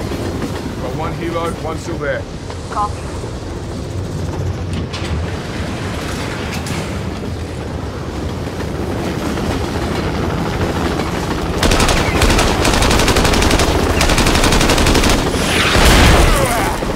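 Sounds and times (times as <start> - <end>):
train rumbling: 0.0 - 16.9
machine gun firing bursts: 11.6 - 16.5.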